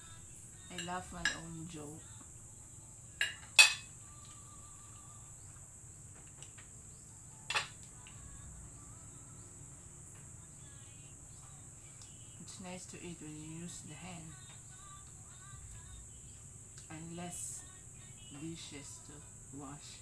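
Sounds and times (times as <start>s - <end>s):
steady high hiss: 0.0s - 20.0s
spoon clinking against plate: 3.2s - 3.9s.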